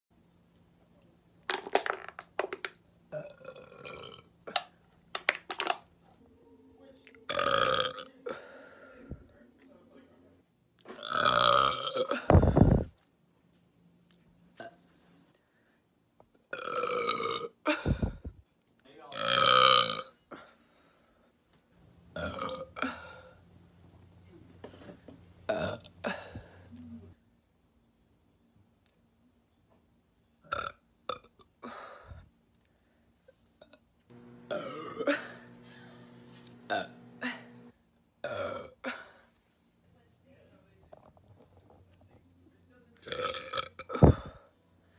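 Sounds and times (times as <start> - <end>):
woman burping: 3.1 - 4.7, 7.3 - 8.4, 10.9 - 12.8, 16.5 - 18.2, 22.2 - 23.3, 25.5 - 27.1, 30.5 - 31.8, 34.5 - 39.1, 43.0 - 44.4
woman gulping a drink: 12.3 - 12.9, 34.4 - 37.7, 43.9 - 44.4
low steady hum: 34.1 - 39.2.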